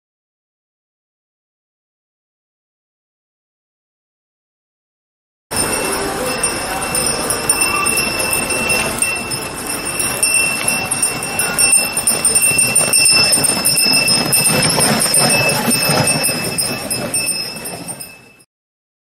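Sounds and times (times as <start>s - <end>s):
harness bell ringing: 5.5s - 18.5s
horse hoofbeats: 5.6s - 18.4s.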